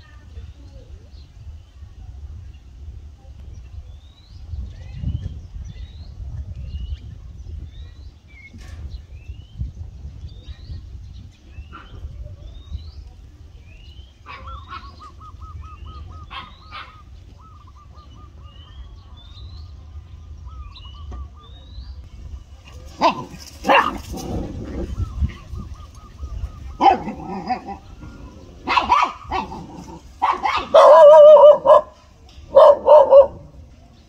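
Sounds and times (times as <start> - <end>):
birds chirping: 0.0 - 34.0
dog barking: 14.3 - 15.0, 16.3 - 17.0, 23.0 - 24.3, 26.8 - 27.8, 28.6 - 33.4
steady low rumble: 15.1 - 34.0.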